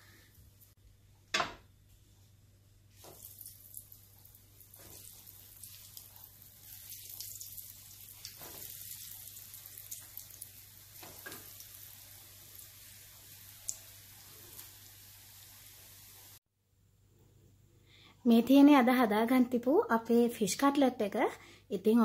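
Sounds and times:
fish sizzling in hot oil: 2.9 - 16.4.

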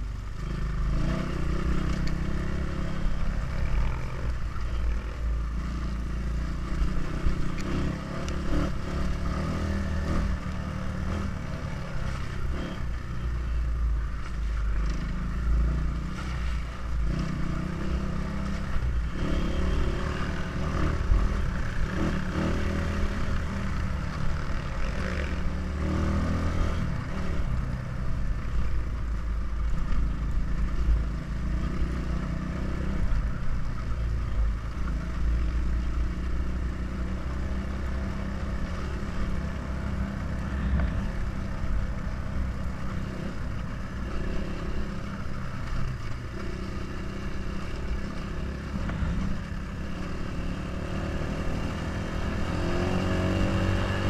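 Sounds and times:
dirt bike engine revving: 17.1 - 23.7, 38.1 - 41.4.

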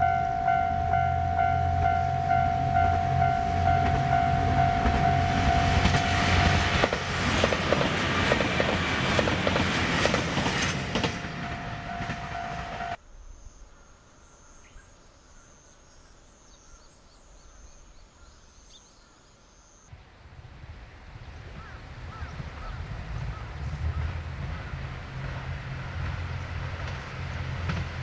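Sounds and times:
steady high tone: 0.0 - 7.3, 11.2 - 13.0
diesel railcar engine: 0.0 - 13.0, 20.1 - 28.0.

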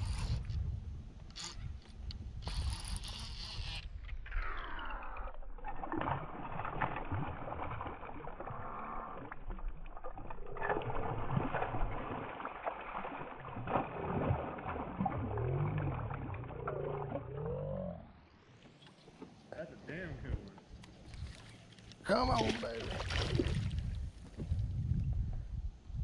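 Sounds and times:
fish splashing in water: 5.0 - 17.5, 21.2 - 23.9.

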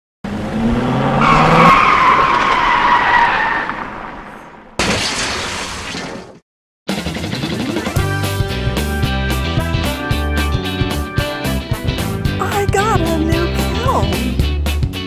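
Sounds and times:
car engine revving: 0.2 - 2.5.

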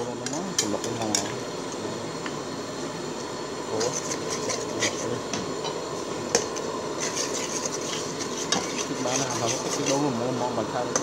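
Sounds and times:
liquid boiling in a pot: 0.0 - 11.0
metal spoon scraping a pot: 3.8 - 10.2.

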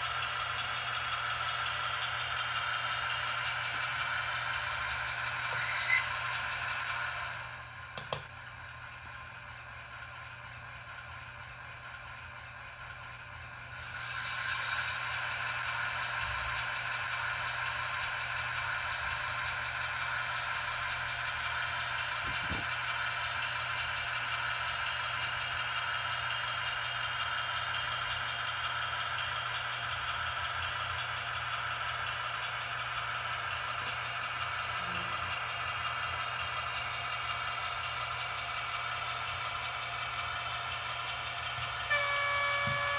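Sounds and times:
diesel engine sound from small loudspeaker: 0.0 - 42.9.

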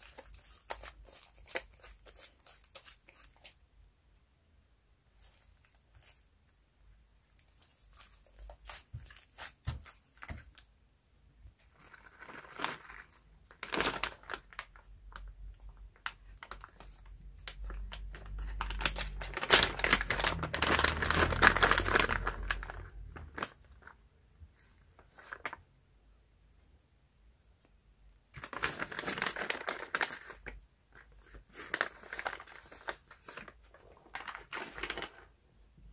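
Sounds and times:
plastic bag crinkling: 0.0 - 3.6, 11.7 - 24.0, 28.4 - 35.3.

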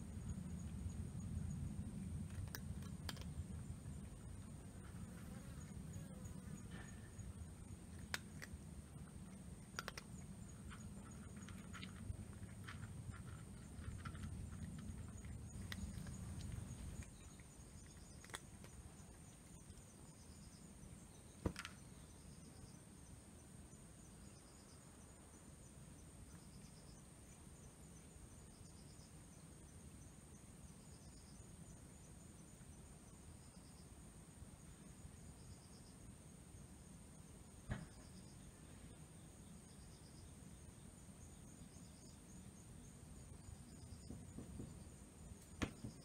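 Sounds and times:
insect chirps: 0.0 - 46.0
cat crunching dry food: 2.0 - 5.2, 7.4 - 19.9.

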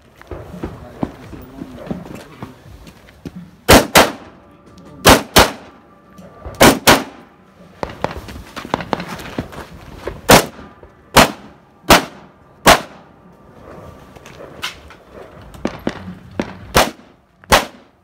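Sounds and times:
rifle shots: 3.7 - 4.4, 5.0 - 5.8, 6.6 - 8.2, 10.3 - 13.1, 15.6 - 17.9.

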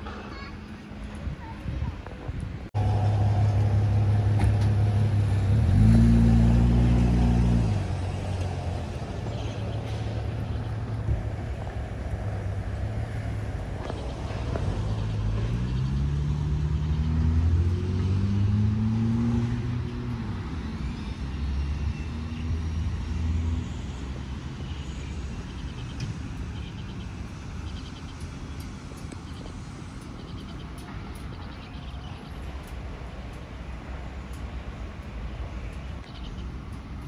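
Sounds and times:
car driving by: 2.8 - 20.0.

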